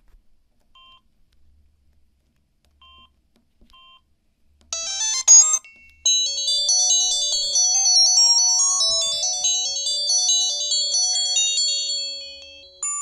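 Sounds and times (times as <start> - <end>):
polyphonic phone ringtone: 4.8 - 13.0.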